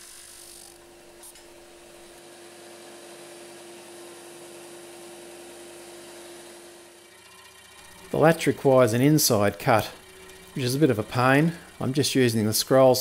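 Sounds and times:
disc sander sanding metal: 6.4s - 13.0s.

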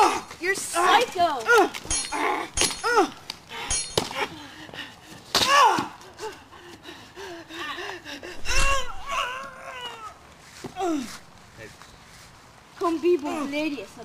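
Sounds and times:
person crying out: 8.4s - 10.2s, 10.8s - 11.2s
person moaning: 10.8s - 11.2s.

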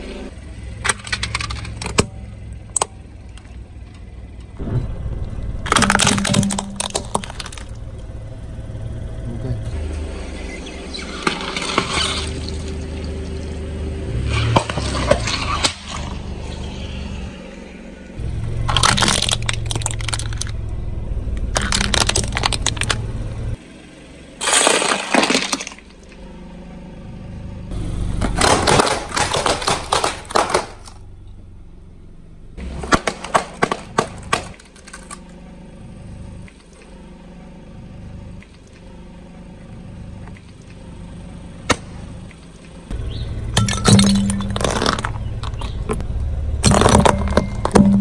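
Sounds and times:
car engine rumble: 0.0s - 48.0s
tyre crushing brittle things: 5.6s - 7.8s, 18.6s - 20.6s, 21.5s - 23.0s, 24.4s - 26.1s, 28.2s - 31.0s, 32.6s - 35.4s, 43.6s - 46.0s, 46.6s - 48.0s.

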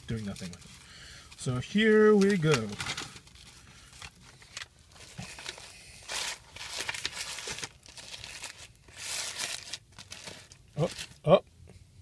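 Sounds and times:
paper wrapper rustling: 2.1s - 11.3s.

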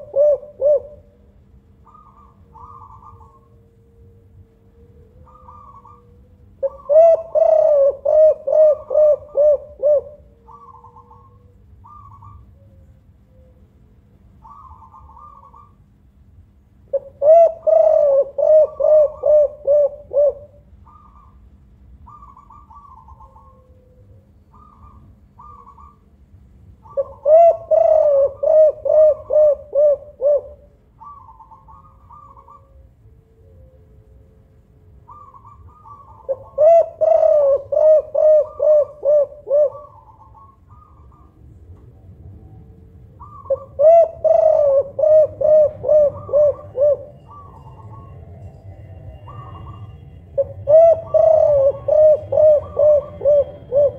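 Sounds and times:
dove cooing: 0.0s - 13.7s, 14.3s - 16.0s, 16.9s - 26.1s, 26.8s - 53.9s
steady low hum: 0.0s - 53.9s
high bird chirps: 46.1s - 53.9s.

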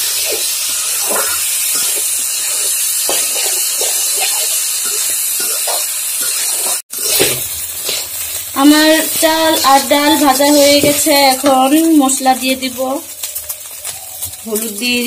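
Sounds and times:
rice and lentils sizzling in oil: 0.0s - 15.0s
metal spatula scraping: 0.1s - 11.8s.

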